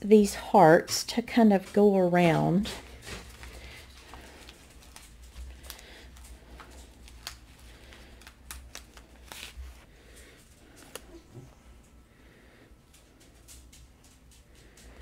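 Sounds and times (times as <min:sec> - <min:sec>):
low steady hum: 0:00.0 - 0:15.0
paper sticker sheet rustling: 0:02.2 - 0:11.2
sticker peeling crackles: 0:03.1 - 0:11.2.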